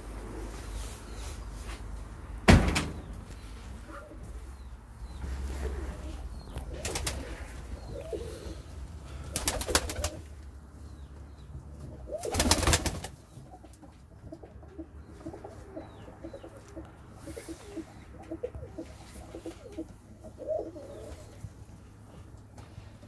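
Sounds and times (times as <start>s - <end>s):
pigeons cooing: 3.8s - 10.4s, 11.9s - 21.6s.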